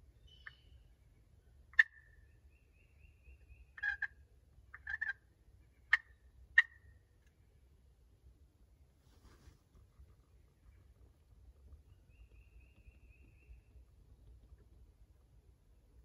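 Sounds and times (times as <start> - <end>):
turkey clucks and yelps: 1.7 - 2.2, 3.4 - 7.0.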